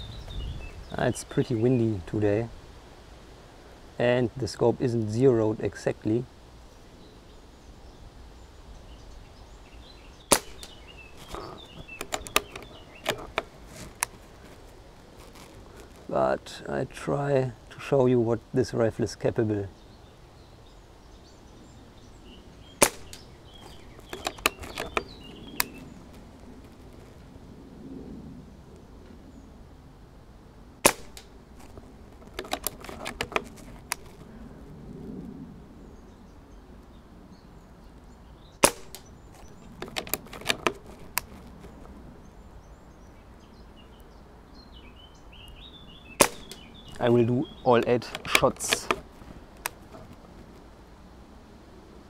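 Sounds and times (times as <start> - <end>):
air rifle shot: 10.3 - 10.8, 22.8 - 23.3, 30.8 - 31.3, 38.6 - 39.1, 46.2 - 46.7
rifle bolt clicks: 10.3 - 14.1, 22.8 - 25.8, 30.8 - 34.2, 38.6 - 41.3, 46.2 - 46.6, 48.0 - 49.8.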